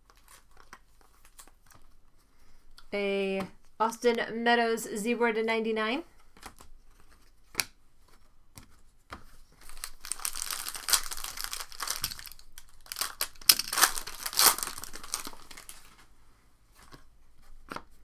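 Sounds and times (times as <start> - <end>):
plastic foil wrapper tearing: 9.6 - 15.9.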